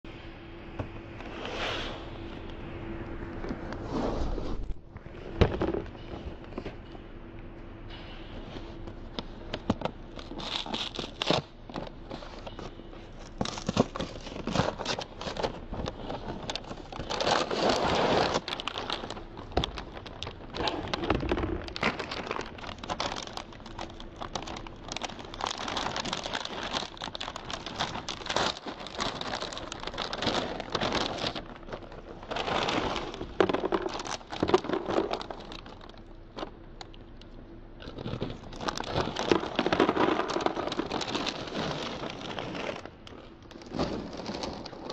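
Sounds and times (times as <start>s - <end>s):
plastic bag crinkling and tearing: 9.2s - 44.9s
cereal shifting in bag: 10.2s - 36.5s, 37.8s - 44.9s.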